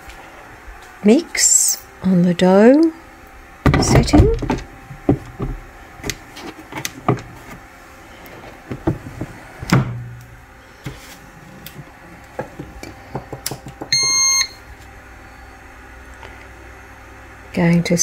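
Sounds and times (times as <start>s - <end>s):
short electronic beep: 13.9s - 14.6s.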